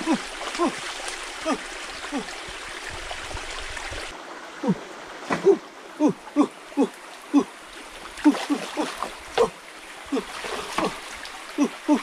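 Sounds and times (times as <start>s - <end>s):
stream running: 0.0s - 12.0s
splashing plunks in water: 8.2s - 12.0s.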